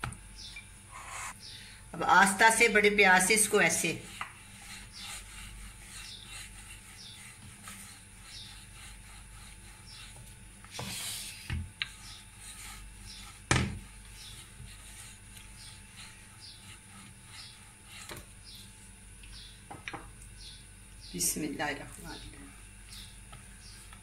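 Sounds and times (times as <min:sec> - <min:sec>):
rolling pin rubbing over dough: 0:02.4 - 0:19.5
rolling pin knocking on board: 0:13.5 - 0:13.8.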